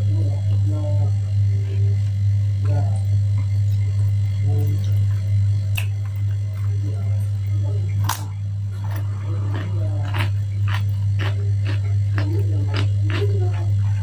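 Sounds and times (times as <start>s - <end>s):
steady low hum: 0.0s - 14.0s
crunchy cucumber bites and chewing: 8.8s - 14.0s.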